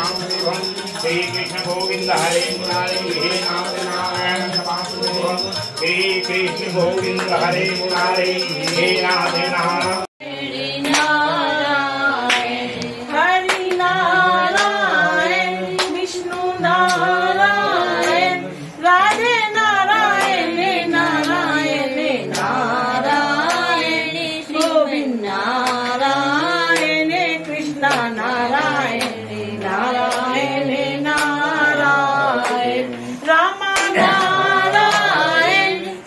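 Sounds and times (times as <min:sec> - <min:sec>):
hand claps: 0:00.0 - 0:10.1, 0:10.8 - 0:11.2, 0:12.2 - 0:13.9, 0:14.5 - 0:14.8, 0:15.8 - 0:17.1, 0:19.1 - 0:19.3, 0:21.2 - 0:21.4, 0:22.3 - 0:22.6, 0:23.4 - 0:23.8, 0:24.6 - 0:24.8, 0:25.6 - 0:26.0, 0:26.7 - 0:28.1, 0:28.9 - 0:30.3, 0:31.1 - 0:31.4, 0:32.4 - 0:32.7, 0:33.7 - 0:35.2
voices singing devotional chant: 0:00.0 - 0:36.0.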